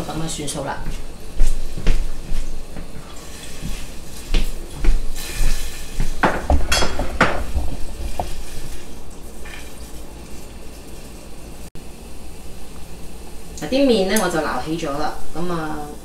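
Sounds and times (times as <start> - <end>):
metal utensil knocking on saucepan: 6.2 - 8.3.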